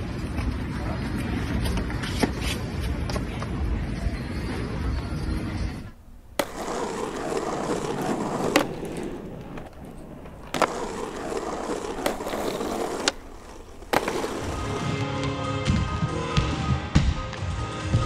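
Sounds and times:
skateboard wheels rolling: 0:00.0 - 0:18.0
skateboard deck clacking: 0:05.9 - 0:15.4.

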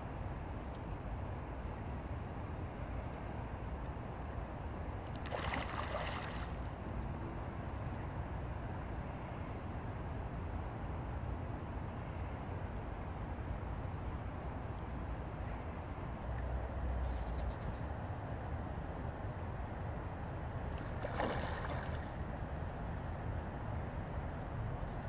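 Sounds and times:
river water rippling over stones: 0:05.0 - 0:06.8, 0:20.7 - 0:22.4
brief water splash: 0:05.2 - 0:06.6, 0:20.8 - 0:22.1.

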